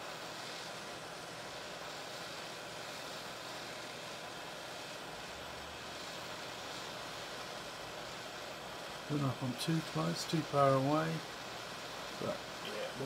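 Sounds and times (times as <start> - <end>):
hot air gun blowing: 0.0 - 13.0.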